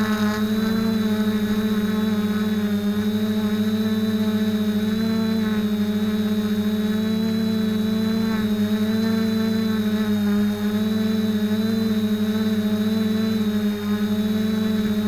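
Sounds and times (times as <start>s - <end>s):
drone motors buzzing: 0.0s - 15.0s.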